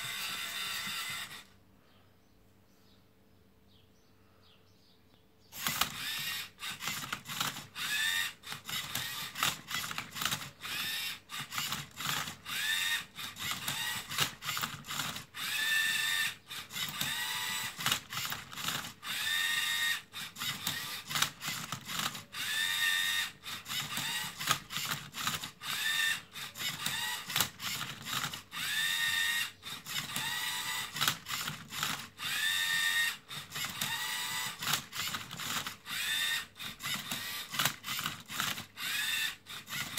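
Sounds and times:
servo motors whining: 0.0 - 1.5, 5.6 - 39.9
plastic clicks and clacks: 26.5 - 28.5, 33.4 - 35.8, 36.7 - 38.8.

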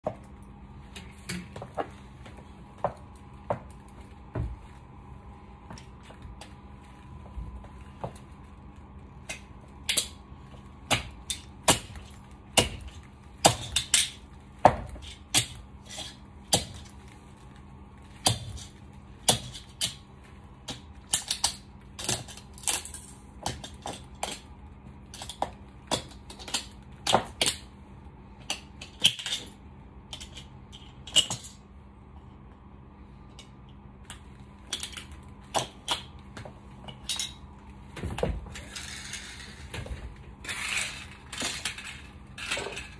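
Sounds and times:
toy cars cracking: 40.4 - 42.9.

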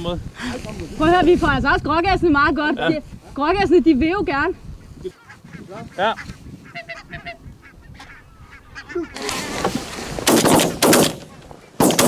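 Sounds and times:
geese honking: 4.8 - 9.5
loud shotgun shots: 10.2 - 12.0.

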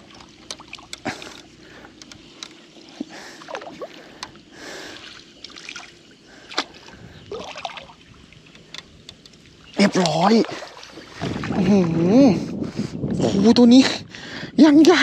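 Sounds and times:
knocks and clicks on boat: 0.0 - 4.4, 8.4 - 10.3.

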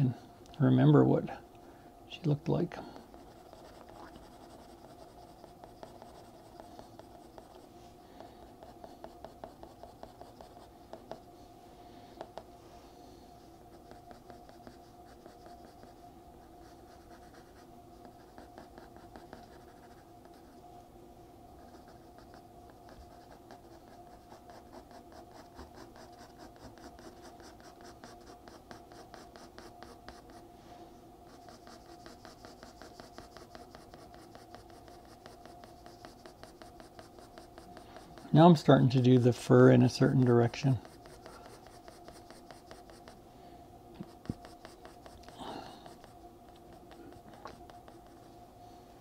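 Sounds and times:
faint steady hum: 0.0 - 49.0
pencil scratching on paper: 3.0 - 7.7, 8.3 - 11.3, 13.4 - 16.0, 16.6 - 20.6, 21.6 - 30.4, 31.3 - 39.0, 40.4 - 43.2, 44.0 - 48.3.

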